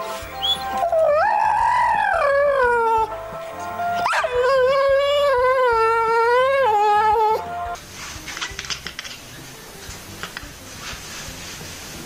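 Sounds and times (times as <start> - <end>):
dog howling: 0.8 - 3.1, 4.0 - 7.5.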